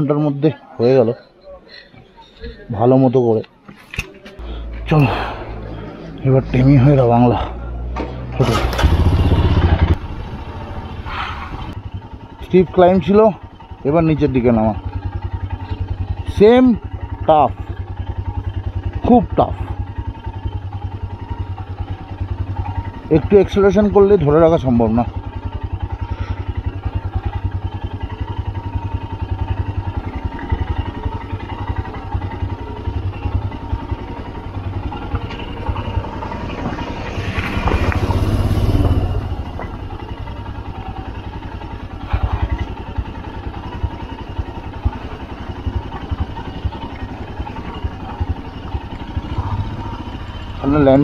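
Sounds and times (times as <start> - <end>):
motorcycle engine running: 4.0 - 51.0.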